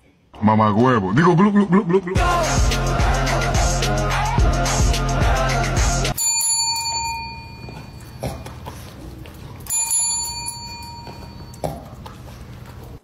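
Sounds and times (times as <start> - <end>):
music: 2.2 - 6.2
bell ringing: 6.1 - 8.2, 9.6 - 11.7.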